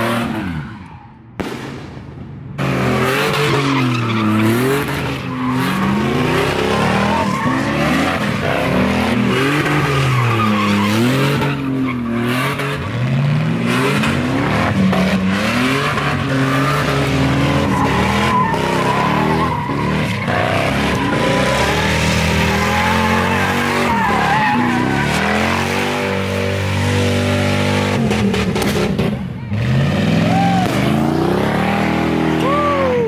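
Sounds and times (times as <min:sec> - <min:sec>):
car engine revving: 0:02.5 - 0:33.0
tyres squealing on pavement: 0:03.3 - 0:13.3, 0:13.9 - 0:27.6.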